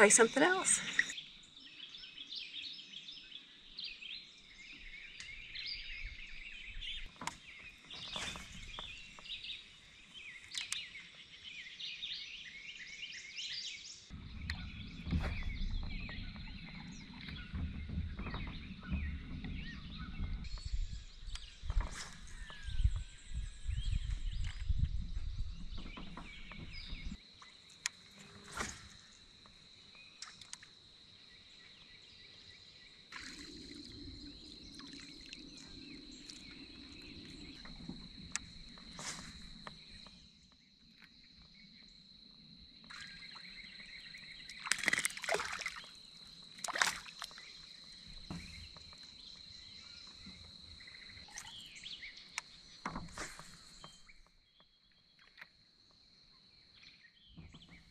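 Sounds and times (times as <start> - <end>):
low rumble: 14.1 - 21.6
water sloshing against kayak hull: 44.4 - 54.2.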